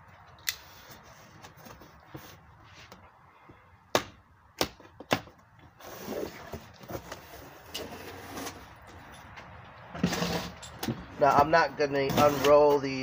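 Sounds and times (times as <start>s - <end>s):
cardboard scraping and rustling: 0.8s - 2.9s, 5.7s - 8.8s, 10.0s - 10.6s, 12.0s - 12.8s.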